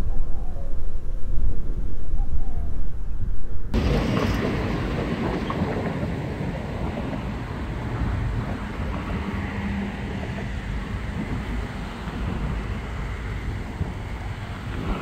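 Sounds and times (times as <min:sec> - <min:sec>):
low rumble: 0:00.0 - 0:07.4
wind rushing over microphone: 0:00.0 - 0:15.0.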